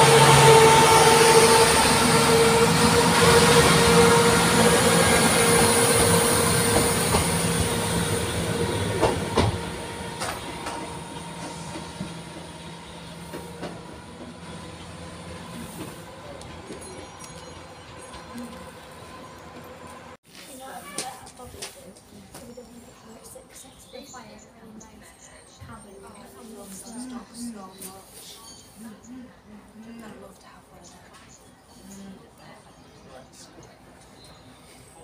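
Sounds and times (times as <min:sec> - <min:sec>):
train wheels clicking on track: 0:00.0 - 0:20.0
diesel train passing with whine: 0:00.0 - 0:20.2.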